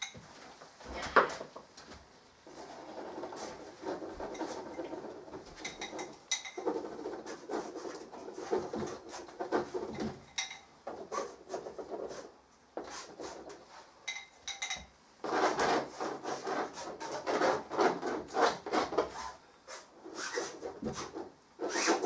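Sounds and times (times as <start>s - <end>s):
brushes scratching on canvas: 2.4s - 10.2s, 10.9s - 13.9s, 15.2s - 22.0s.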